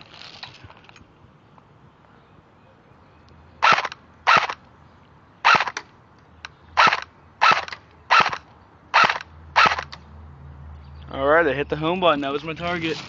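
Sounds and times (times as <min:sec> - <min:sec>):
airsoft rifle shots: 0:03.6 - 0:04.6, 0:05.4 - 0:05.8, 0:06.8 - 0:10.0.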